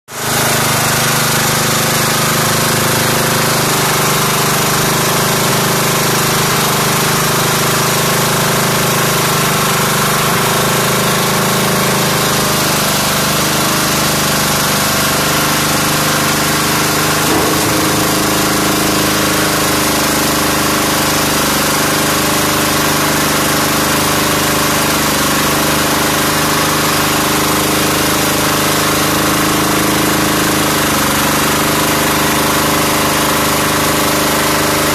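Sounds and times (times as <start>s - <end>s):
diesel engine clattering: 14.8s - 22.4s
brief knock: 17.3s - 19.8s.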